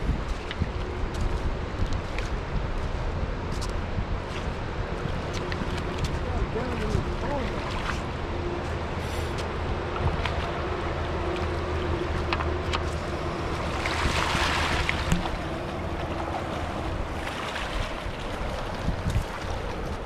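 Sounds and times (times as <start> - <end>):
wind buffeting microphone: 0.0 - 20.0
river water running over stones: 0.4 - 20.0
water splashing: 4.3 - 8.3, 10.0 - 20.0.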